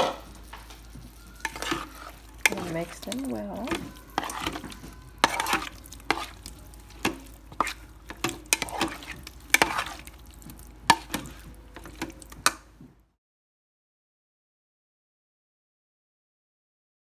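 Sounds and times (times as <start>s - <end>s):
shrimp sizzling: 0.0s - 12.8s
spoon knocking and scraping pot: 0.0s - 12.8s.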